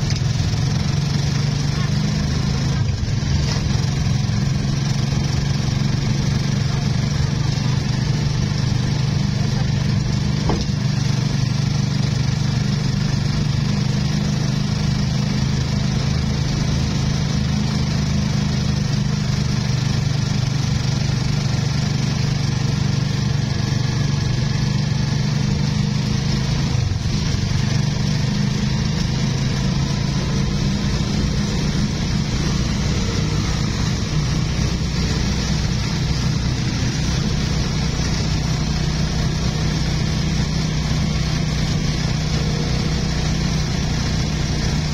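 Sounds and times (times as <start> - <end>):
motorcycle engine running: 0.0 - 44.9.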